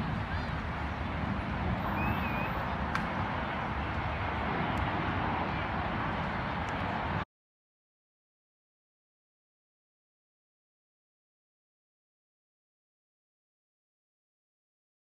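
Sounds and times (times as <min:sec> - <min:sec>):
outdoor background rumble and hiss: 0:00.0 - 0:07.2.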